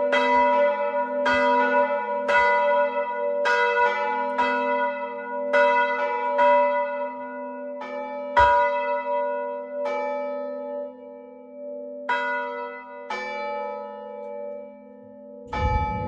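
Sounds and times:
church bells ringing: 0:00.0 - 0:16.0
low bell tone humming: 0:15.5 - 0:16.0.

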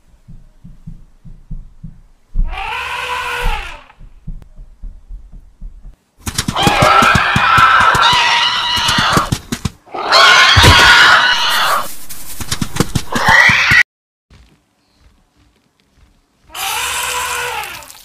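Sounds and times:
faint low thumps: 0:00.0 - 0:06.3
elephant trumpeting: 0:16.5 - 0:17.9.

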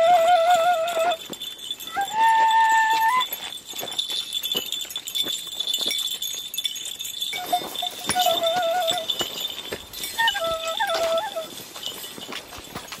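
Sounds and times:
small pipe playing trills: 0:00.0 - 0:03.6, 0:07.3 - 0:11.8
goat bells clinking: 0:00.0 - 0:13.0.

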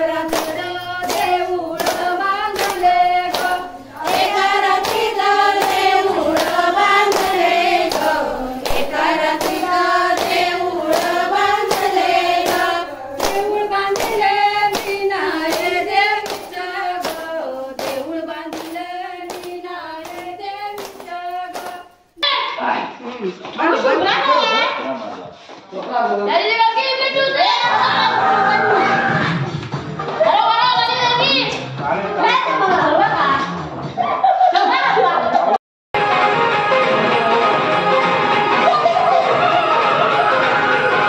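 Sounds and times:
women singing together: 0:00.0 - 0:22.0
hand claps: 0:00.2 - 0:22.0.

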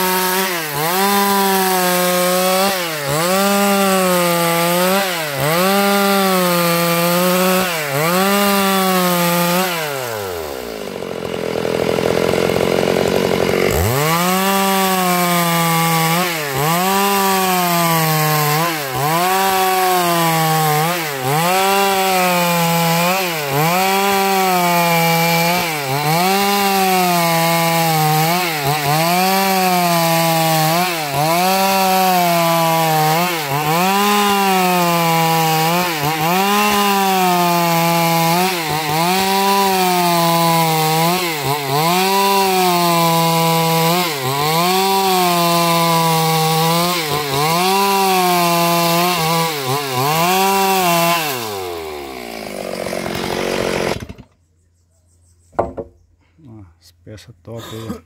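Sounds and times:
chainsaw cutting wood: 0:00.0 - 0:54.4, 0:55.6 - 0:55.9.

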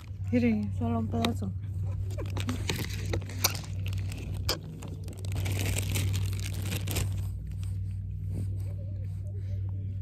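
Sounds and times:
plastic bag crinkling: 0:02.2 - 0:07.8.

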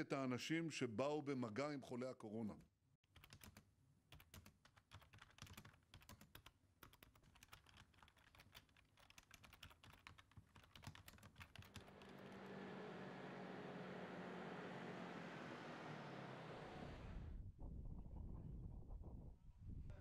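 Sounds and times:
keyboard typing: 0:03.1 - 0:12.4
low hum: 0:11.7 - 0:17.5.

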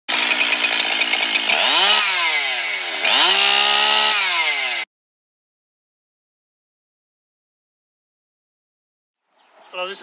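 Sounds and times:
chainsaw engine revving: 0:00.1 - 0:04.9.

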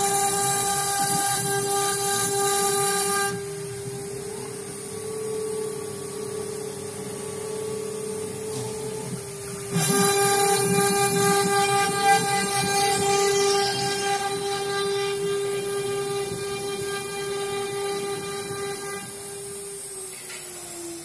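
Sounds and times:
router bit cutting with hiss: 0:00.0 - 0:03.7, 0:08.6 - 0:21.0
router spindle whine: 0:00.0 - 0:21.0.

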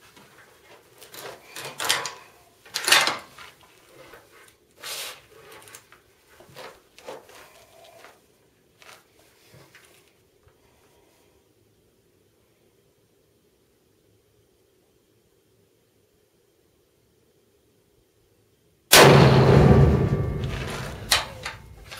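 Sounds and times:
quiet clicks and rustles: 0:20.4 - 0:21.9.

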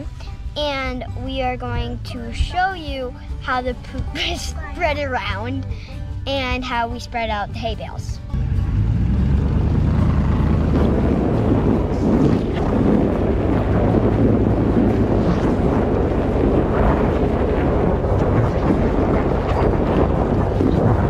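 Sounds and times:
low engine hum: 0:00.0 - 0:21.0
wind buffeting microphone: 0:08.3 - 0:21.0.

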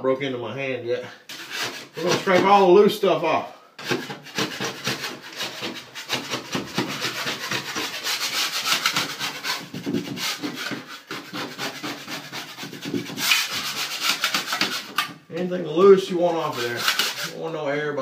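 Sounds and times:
drywall knife scraping: 0:01.3 - 0:02.8, 0:03.8 - 0:17.5.

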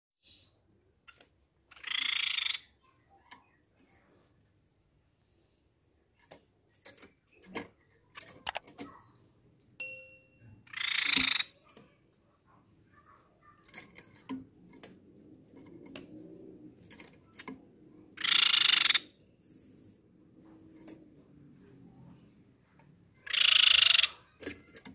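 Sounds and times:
bird trilling calls: 0:01.7 - 0:03.6, 0:10.6 - 0:11.7, 0:18.2 - 0:20.1, 0:23.2 - 0:24.7.

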